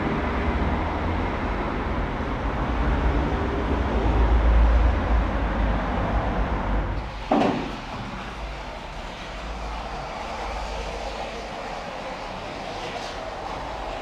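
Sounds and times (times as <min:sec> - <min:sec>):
model train rumbling on track: 0:06.6 - 0:14.0.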